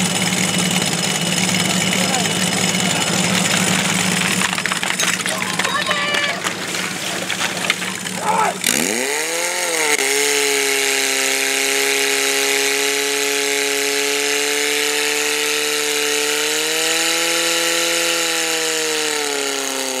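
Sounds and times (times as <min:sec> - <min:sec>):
fire pump engine droning: 0:00.0 - 0:10.5.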